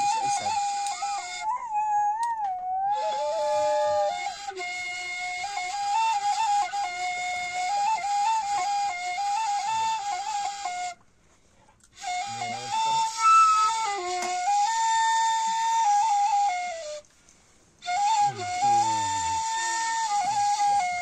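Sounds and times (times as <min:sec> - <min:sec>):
end-blown flute melody: 0:00.0 - 0:11.0, 0:12.0 - 0:17.1, 0:17.8 - 0:21.0.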